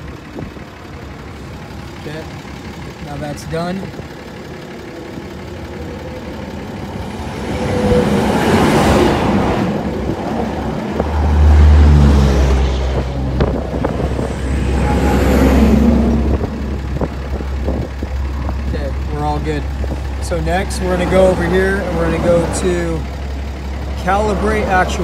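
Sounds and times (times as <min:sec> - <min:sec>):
low engine rumble: 0:00.0 - 0:25.0
vehicles passing on road: 0:00.0 - 0:25.0.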